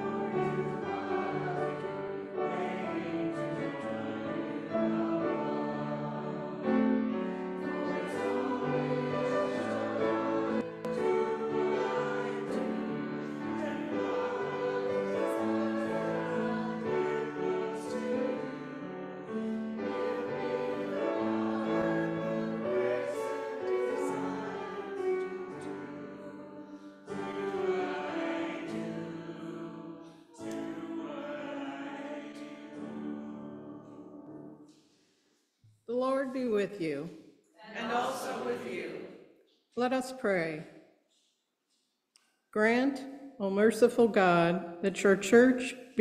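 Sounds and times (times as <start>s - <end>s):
group singing a hymn: 0.0s - 34.7s, 37.7s - 39.2s.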